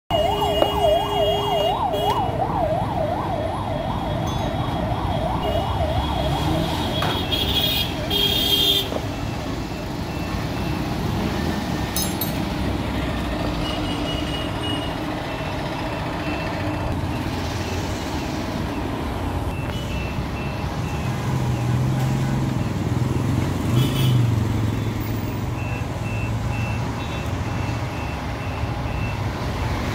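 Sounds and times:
siren yelping: 0.1 - 6.8
street traffic: 0.1 - 29.9.

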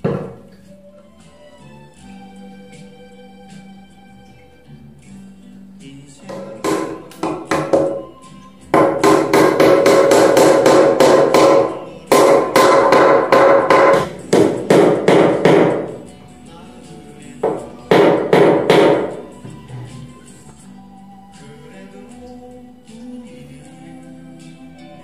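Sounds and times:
hammer blows on wood: 6.3 - 16.0, 17.4 - 20.0.

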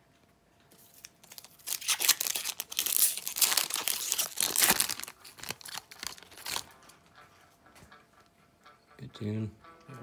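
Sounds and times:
wrapper tearing and crinkling: 0.9 - 6.7.

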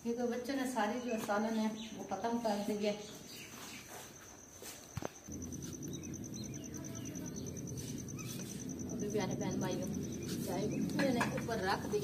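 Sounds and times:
wood fire burning: 5.2 - 12.0.

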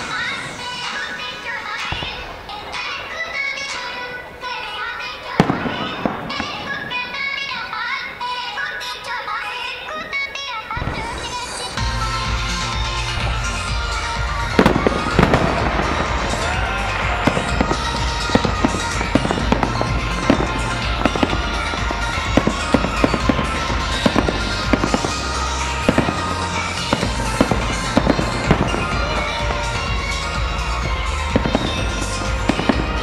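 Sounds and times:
fireworks bursting with sharp bangs: 0.0 - 33.0
show music with pulsing bass: 11.8 - 33.0.

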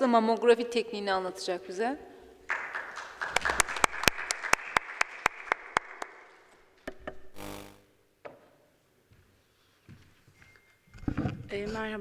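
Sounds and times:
sharp nearby hand claps: 2.5 - 6.4
audience applauding: 2.5 - 6.5.

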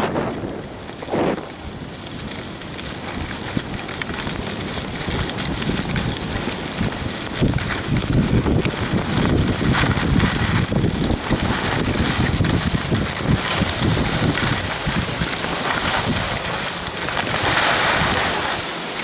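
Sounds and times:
skis hissing on snow: 0.0 - 1.9, 8.0 - 19.0
wind buffeting microphone: 0.0 - 19.0.

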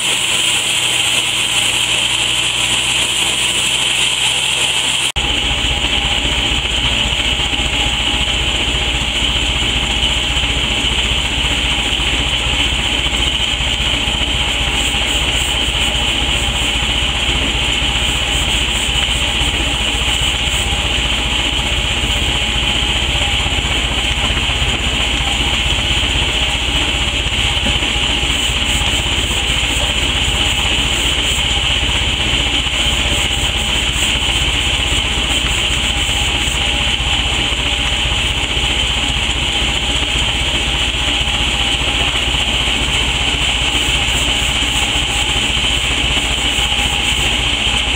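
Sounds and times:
steady mechanical drone: 0.0 - 47.9
brush scrubbing wood: 14.3 - 24.0, 27.4 - 37.0, 42.7 - 47.9.

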